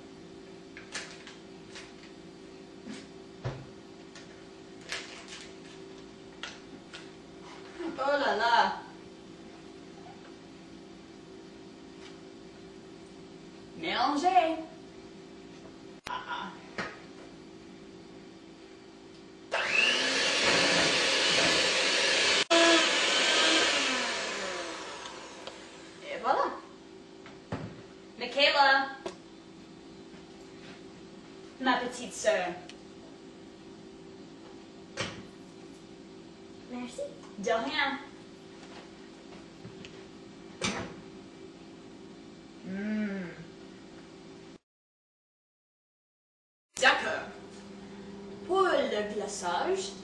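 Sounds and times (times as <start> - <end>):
electric mixer whirring: 19.5 - 26.0.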